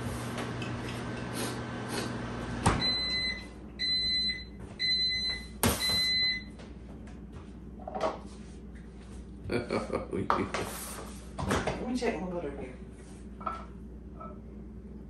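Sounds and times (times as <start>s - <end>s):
microwave oven beeping: 0.0s - 6.6s.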